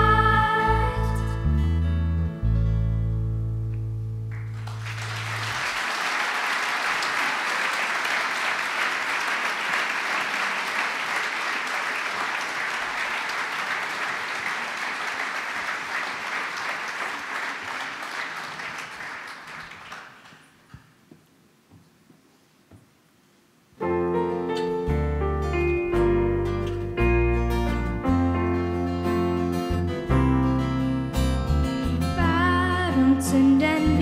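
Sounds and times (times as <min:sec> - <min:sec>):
audience applauding: 0:04.3 - 0:20.8.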